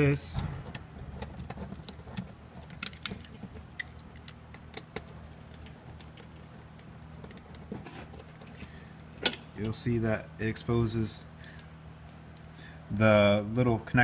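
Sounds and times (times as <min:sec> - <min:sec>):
low steady hum: 0:00.0 - 0:14.0
screwdriver metallic clicks and scrapes: 0:00.7 - 0:08.6.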